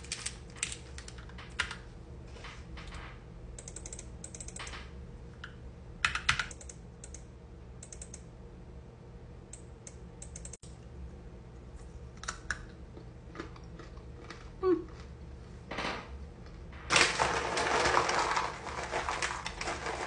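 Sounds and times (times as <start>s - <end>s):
computer keyboard typing: 0.0s - 1.8s, 3.6s - 4.7s, 6.0s - 7.2s, 7.8s - 8.2s, 9.9s - 10.6s
crunching dry snack: 12.3s - 15.1s, 16.9s - 20.0s.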